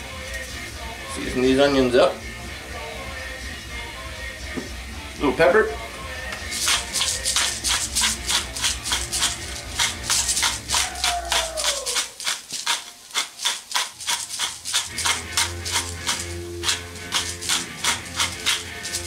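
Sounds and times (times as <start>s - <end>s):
spice grinder crunchy grinding: 6.4s - 19.0s.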